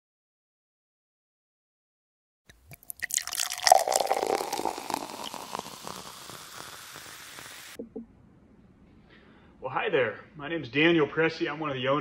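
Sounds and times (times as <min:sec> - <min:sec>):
wine pouring into a glass: 0:02.5 - 0:07.8.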